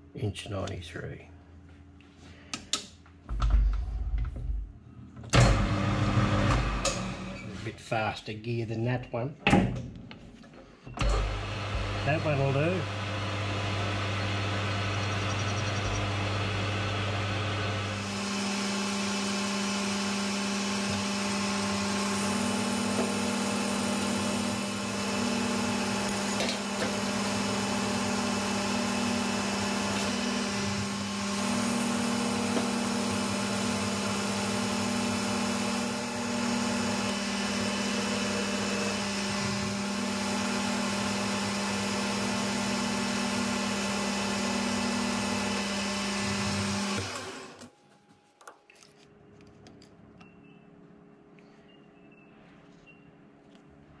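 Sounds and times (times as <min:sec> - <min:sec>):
metal lathe running: 0:11.1 - 0:47.6
lathe tool cutting metal: 0:11.2 - 0:47.6.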